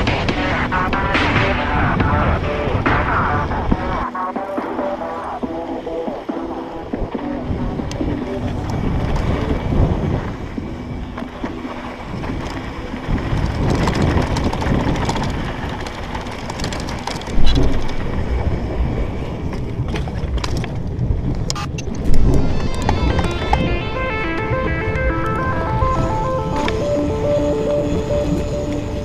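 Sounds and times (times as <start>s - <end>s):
wind buffeting microphone: 0.0s - 29.0s
mountain bike rattling over dirt: 6.9s - 23.1s.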